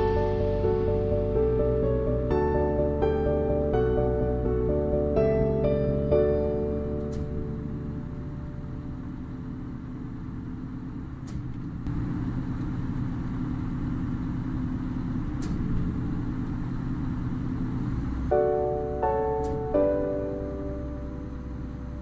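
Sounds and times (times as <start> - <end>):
heavy machinery engine running: 0.0 - 22.0.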